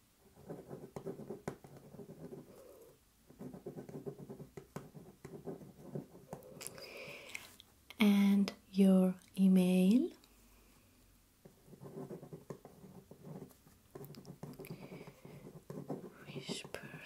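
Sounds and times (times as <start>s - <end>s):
pen scratching on paper: 0.3s - 6.6s, 11.4s - 17.0s.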